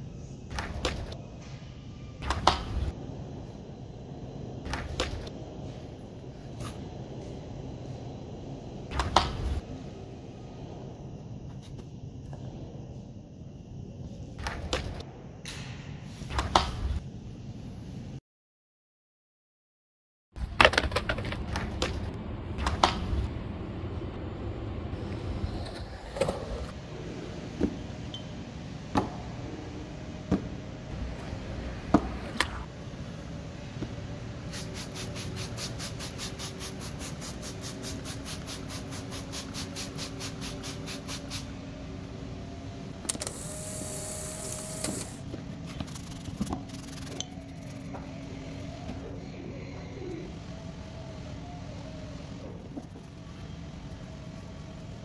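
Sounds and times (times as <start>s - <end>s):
hiss: 34.4s - 41.6s, 43.2s - 47.8s.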